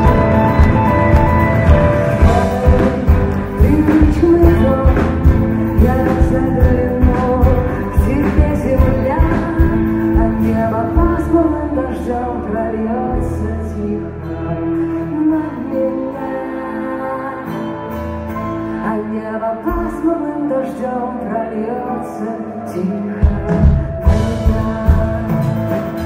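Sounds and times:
steady drum beat: 0.0s - 11.2s, 23.2s - 26.0s
guitar: 0.0s - 26.0s
woman singing into a microphone: 2.2s - 26.0s.

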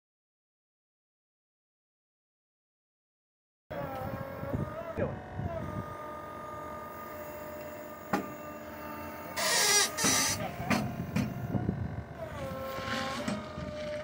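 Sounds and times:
electric motor and hydraulics whining: 3.7s - 14.0s
loud burst of hiss: 9.4s - 10.5s.

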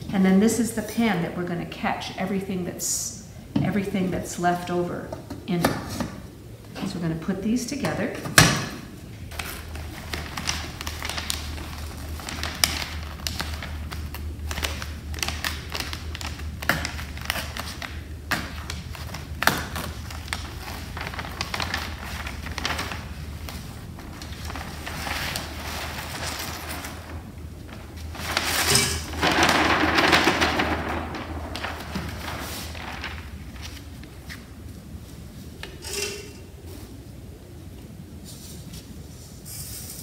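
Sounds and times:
paper rustling and crinkling: 9.3s - 35.8s.

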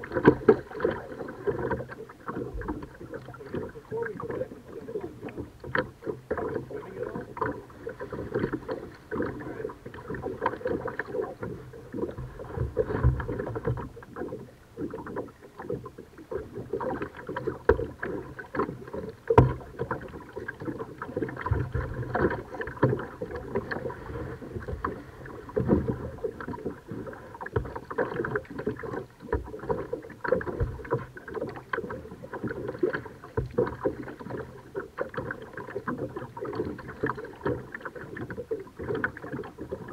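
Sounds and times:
paddle splashing in water: 0.0s - 39.9s.

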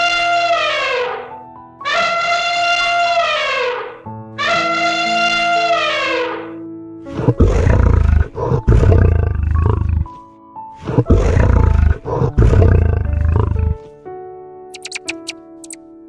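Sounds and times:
background music: 0.0s - 16.0s
elephant trumpeting: 7.1s - 10.1s, 10.8s - 13.8s
lion roaring: 7.1s - 10.2s, 10.8s - 13.9s.

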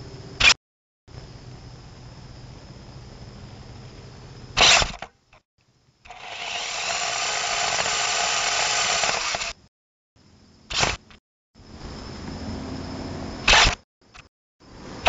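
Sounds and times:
small electric motor whirring: 6.1s - 9.6s.

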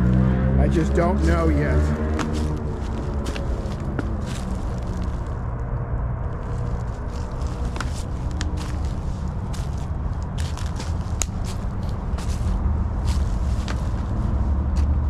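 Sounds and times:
steady low rumble: 0.0s - 15.0s
footsteps crunching through dry leaves: 0.7s - 5.4s, 6.3s - 15.0s
twigs snapping: 1.9s - 5.4s, 6.4s - 14.1s.

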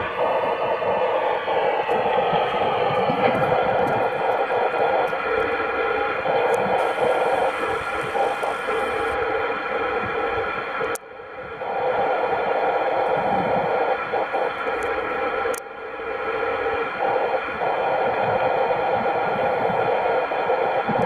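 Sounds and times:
radio static hiss: 0.0s - 21.0s
radio click: 6.3s - 9.2s.

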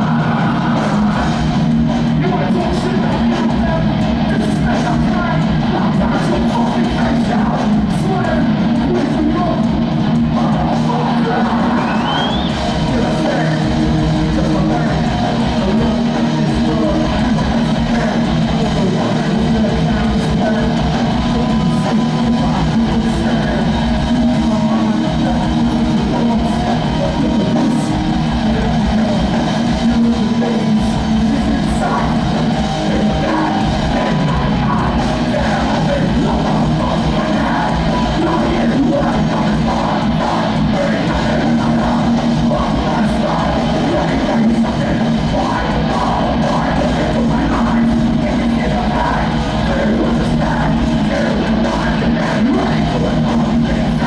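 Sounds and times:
metal band playing live: 0.0s - 54.0s
pounding drum kit: 0.0s - 54.0s
shouted vocal: 0.0s - 54.0s.

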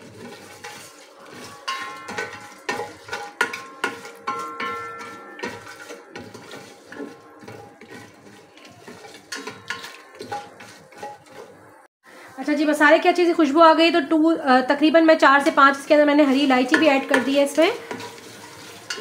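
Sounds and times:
spatula scraping metal pot: 0.0s - 11.8s, 15.2s - 19.0s
metallic ring from pot: 1.6s - 7.9s.

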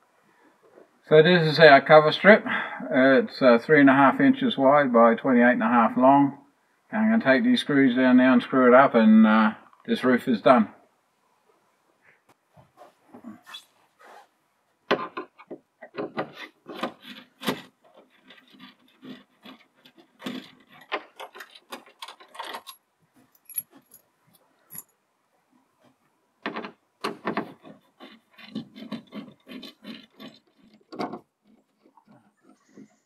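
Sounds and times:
screwdriver clicking and scraping: 15.0s - 22.8s, 27.3s - 32.6s.

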